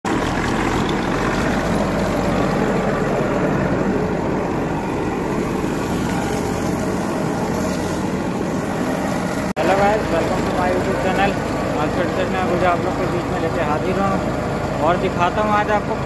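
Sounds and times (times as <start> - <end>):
tractor engine running: 0.0 - 16.0
water pressure jet: 0.1 - 16.0.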